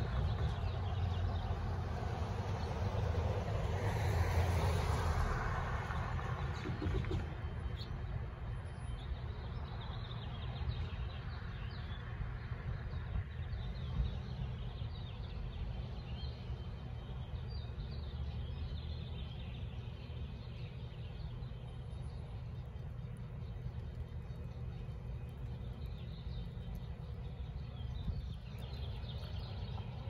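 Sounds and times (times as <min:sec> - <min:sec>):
low rumble of street ambience: 0:00.0 - 0:30.0
small birds chirping: 0:06.3 - 0:30.0.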